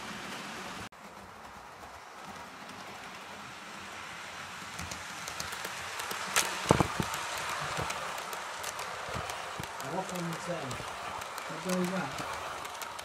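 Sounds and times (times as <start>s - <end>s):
model train rolling hum: 0.0s - 13.0s
wheels clicking over rail joints: 0.0s - 13.0s.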